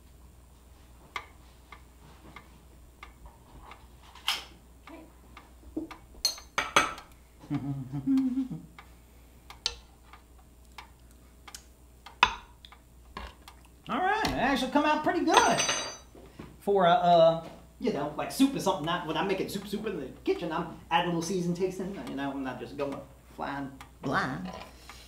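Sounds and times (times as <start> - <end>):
faint regular ticking: 1.1 - 7.2, 8.2 - 14.7, 18.3 - 25.0
man humming: 7.4 - 8.8.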